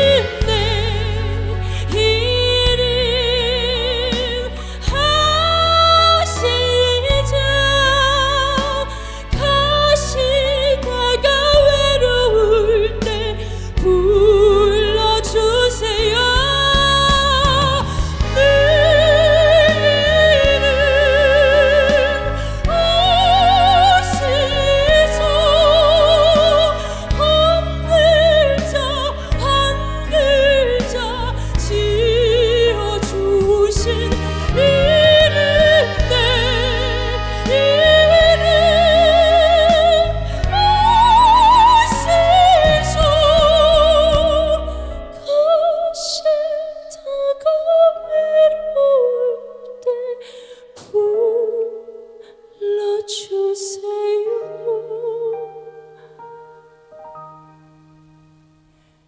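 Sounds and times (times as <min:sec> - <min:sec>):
band accompaniment: 0:00.0 - 0:45.3
woman singing with vibrato: 0:00.0 - 0:56.2.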